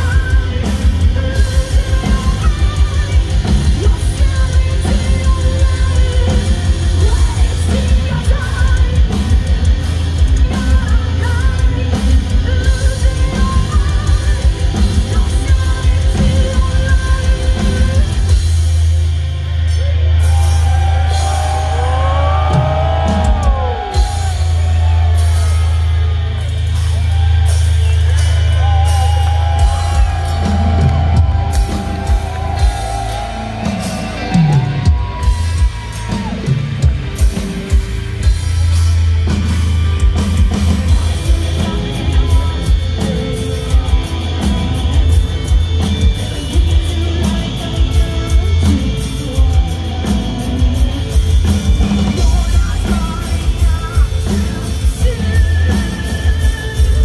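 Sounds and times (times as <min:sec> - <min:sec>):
drums: 0:00.0 - 0:57.0
metal band playing live: 0:00.0 - 0:57.0.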